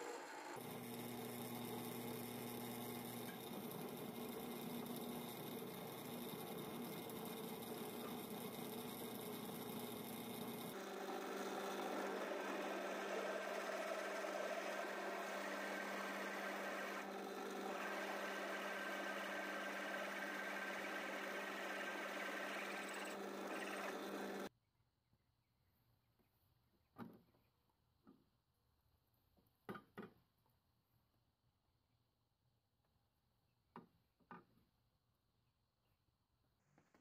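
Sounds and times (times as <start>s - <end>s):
drill bit cutting metal: 0.0s - 24.5s
drill press motor hum: 0.0s - 24.5s.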